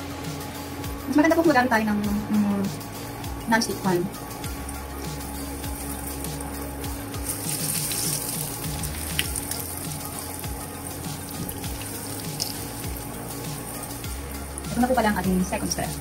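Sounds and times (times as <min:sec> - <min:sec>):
meat frying in hot oil: 0:04.4 - 0:16.0.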